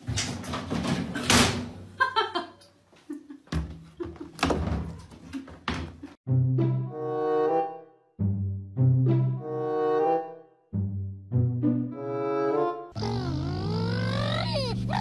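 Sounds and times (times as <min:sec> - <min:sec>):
knocks and bangs in washing machine: 0:00.0 - 0:01.8, 0:04.4 - 0:06.0
music: 0:06.2 - 0:13.0.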